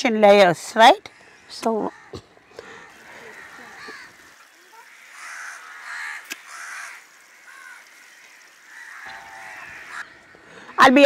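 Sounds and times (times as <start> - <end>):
crows cawing: 1.0 - 10.8.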